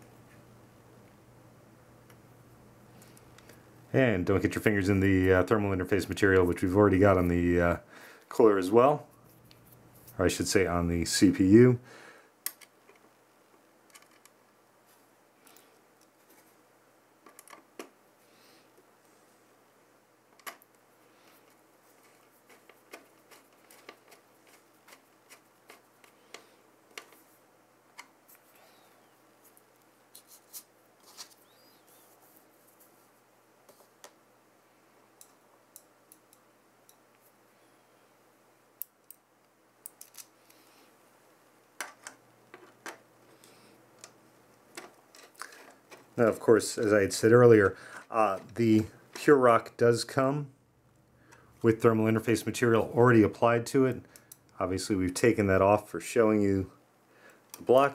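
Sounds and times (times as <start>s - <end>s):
screwdriver clicking and scraping: 21.4s - 27.2s, 44.8s - 46.2s.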